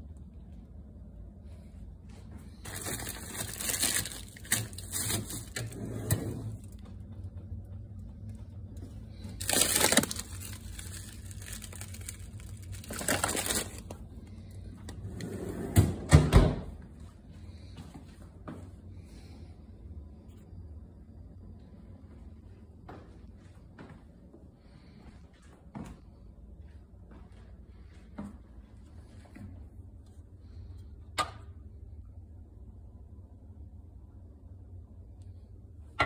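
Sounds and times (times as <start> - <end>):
plastic bags rustling: 2.5 - 6.8, 9.1 - 14.5.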